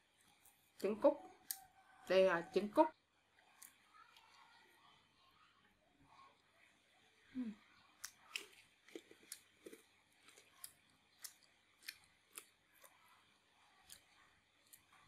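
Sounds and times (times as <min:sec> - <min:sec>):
person chewing food: 0:00.0 - 0:01.9, 0:03.2 - 0:04.6, 0:06.3 - 0:15.0.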